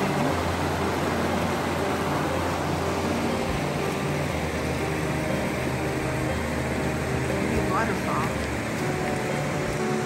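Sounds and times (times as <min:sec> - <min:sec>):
river water rushing over rocks: 0:00.0 - 0:10.0.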